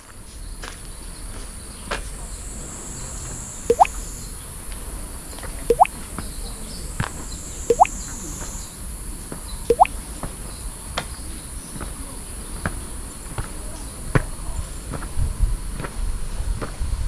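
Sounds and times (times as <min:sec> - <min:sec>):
water dripping into a pool: 0:03.7 - 0:03.9, 0:05.7 - 0:05.9, 0:09.7 - 0:09.9.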